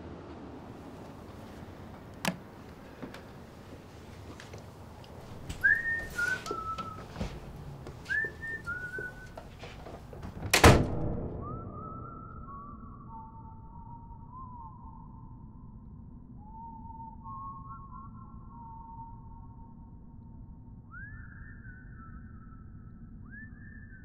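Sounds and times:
long whistle-like tone: 5.6 - 7.3, 8.0 - 9.4, 11.4 - 20.1, 20.7 - 24.0
whistle-like calls: 5.6 - 7.3, 8.0 - 9.4, 11.4 - 15.4, 16.4 - 19.7, 20.9 - 24.0
loud thunk: 10.2 - 11.7.

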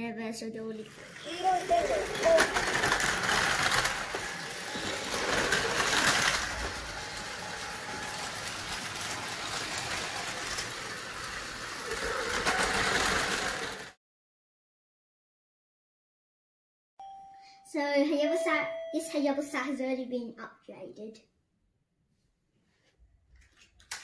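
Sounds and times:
toy train motor whirring: 0.8 - 14.0
wheels rattling on plastic track: 0.9 - 14.0.

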